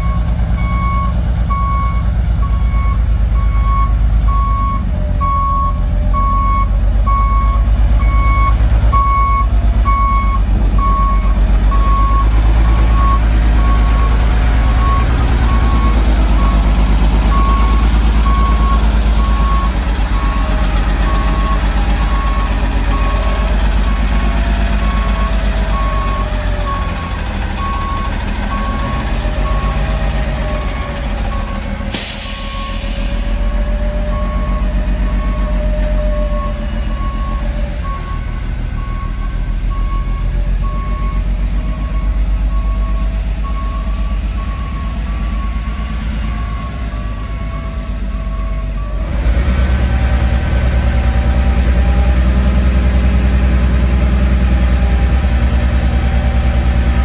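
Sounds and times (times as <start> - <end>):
truck engine rumble: 0.0 - 57.0
air brake hiss: 31.9 - 33.4.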